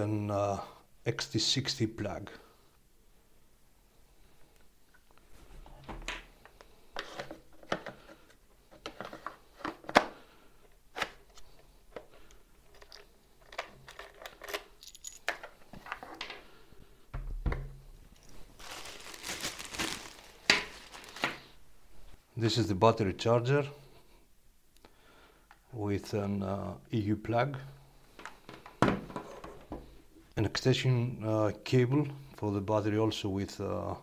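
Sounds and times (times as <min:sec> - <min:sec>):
plastic bag crinkling: 0:18.1 - 0:21.6.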